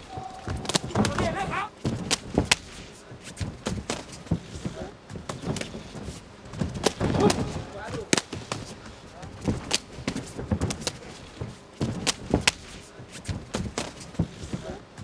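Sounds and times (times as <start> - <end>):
voices shouting: 0.0 - 1.8, 7.1 - 8.1
kicks and punches smacking: 6.5 - 8.8.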